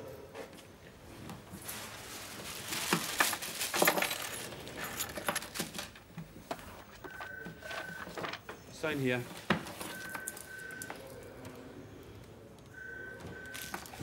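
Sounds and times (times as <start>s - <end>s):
small metal objects clinking: 2.5s - 6.1s, 13.5s - 14.0s.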